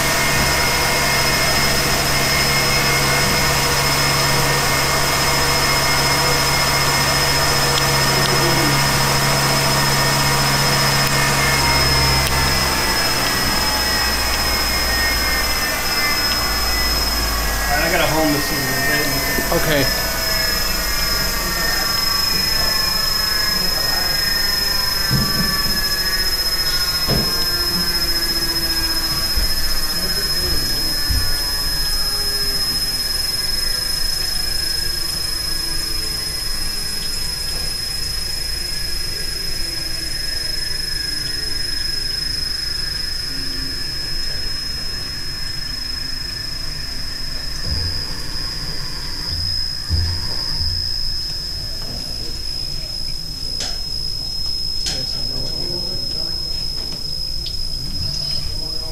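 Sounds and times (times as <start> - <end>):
coolant pouring: 0.0 - 28.2
high machine whine: 0.0 - 58.9
milling machine running: 0.0 - 58.9
short low pulses: 0.0 - 58.9.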